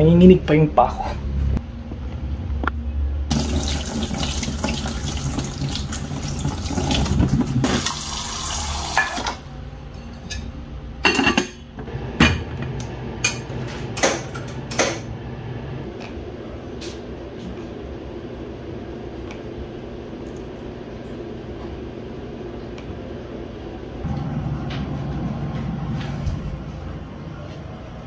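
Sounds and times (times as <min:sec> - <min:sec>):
tap water running into pot: 0:03.3 - 0:09.4
metal pot and lid clanking: 0:09.9 - 0:12.5.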